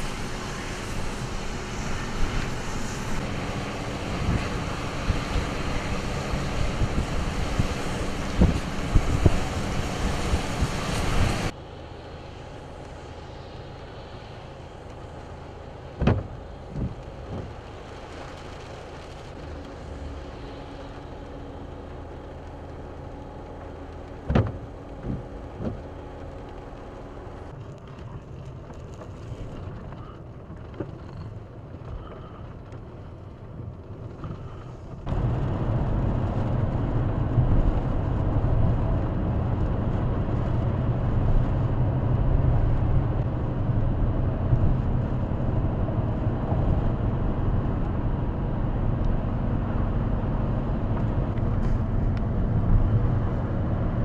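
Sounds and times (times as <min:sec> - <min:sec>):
strong wind on microphone: 0:00.0 - 0:11.5
heavy rain: 0:00.0 - 0:54.0
vehicle hum inside cab: 0:00.0 - 0:54.0
vehicle on wet road: 0:00.0 - 0:54.0
sharp knocks: 0:16.0 - 0:16.9.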